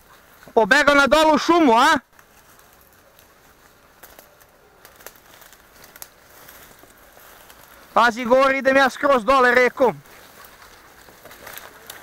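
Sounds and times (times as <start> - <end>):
dry leaves crackling underfoot: 0.0 - 12.0
twigs snapping: 2.1 - 8.0, 10.0 - 12.0.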